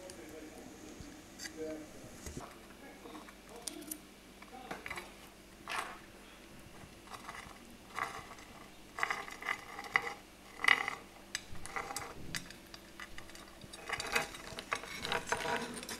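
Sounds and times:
crab shells clicking and clattering: 6.8 - 15.9.

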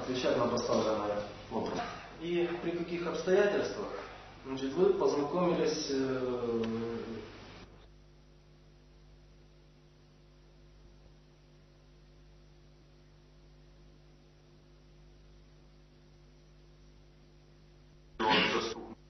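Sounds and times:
man speaking: 0.0 - 7.3, 18.2 - 19.0
mains hum: 0.0 - 19.0
tape hiss: 0.0 - 19.0.

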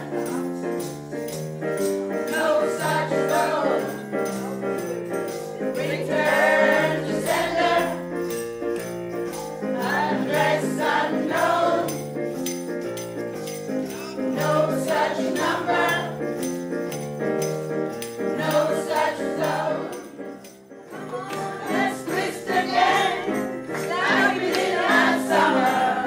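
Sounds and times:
jingling hand percussion: 0.0 - 26.0
group of voices singing: 2.2 - 4.2, 5.6 - 8.4, 9.6 - 12.0, 14.2 - 16.4, 18.4 - 20.3, 20.9 - 26.0.

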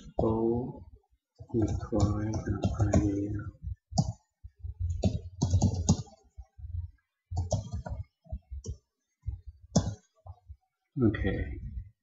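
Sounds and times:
computer keyboard typing: 1.4 - 4.3, 4.9 - 6.2, 7.3 - 8.8, 9.7 - 10.1.

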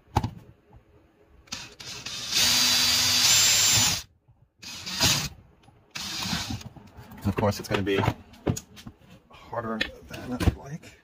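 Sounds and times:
power drill boring into wood: 1.5 - 5.3, 5.9 - 6.6.

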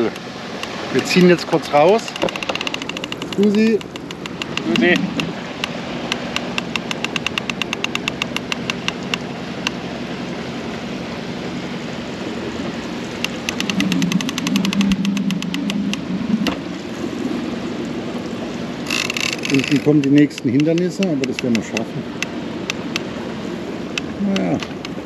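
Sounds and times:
engine hum: 0.0 - 25.0
fishing reel clicking rapidly: 2.2 - 5.0, 6.2 - 9.2, 13.2 - 15.8, 18.9 - 21.6.

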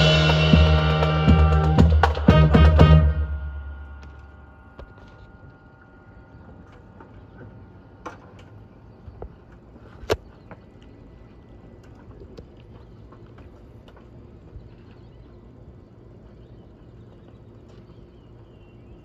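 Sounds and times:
band's held chord: 0.0 - 6.2.

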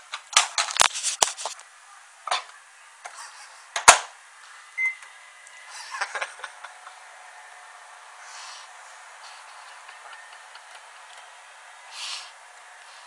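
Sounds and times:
microwave keypad beep: 4.8 - 5.0.

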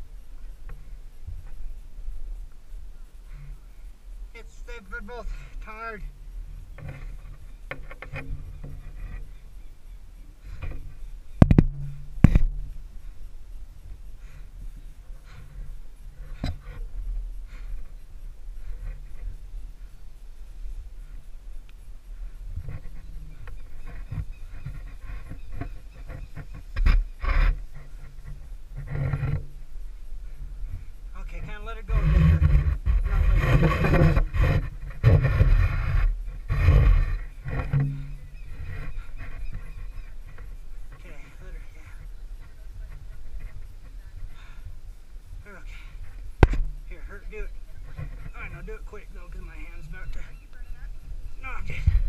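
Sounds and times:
knocks against tree trunk: 10.6 - 12.7, 46.4 - 46.8.

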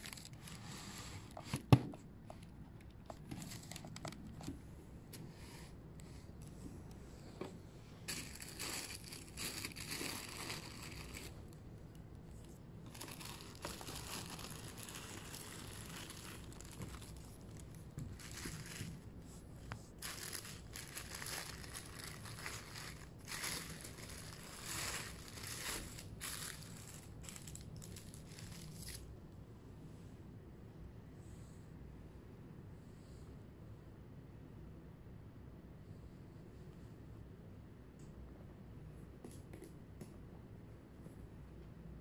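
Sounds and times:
tissue paper crinkling: 0.0 - 1.4, 3.2 - 4.4, 8.0 - 11.5, 12.3 - 29.1.

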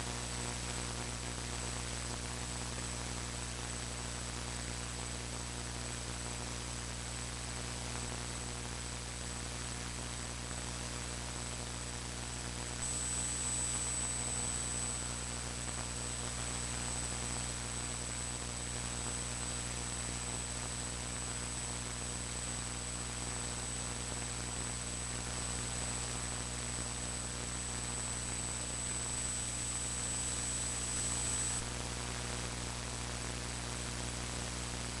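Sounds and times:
electrical hum and hiss: 0.0 - 35.0
thin high-pitched whine: 12.8 - 15.2, 27.0 - 31.7.

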